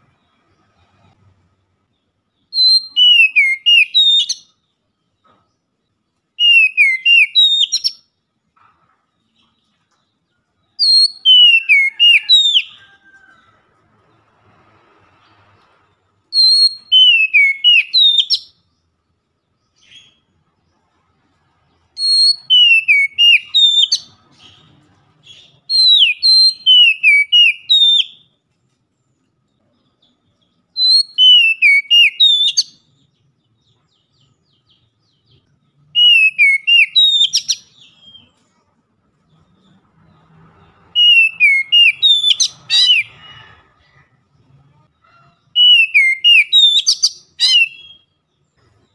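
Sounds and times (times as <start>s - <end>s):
bird singing whistled song: 2.4s - 4.7s, 6.4s - 8.2s, 10.7s - 13.2s, 16.3s - 18.8s, 22.0s - 28.3s, 30.4s - 33.3s, 33.9s - 38.4s, 40.9s - 43.3s, 45.6s - 48.4s.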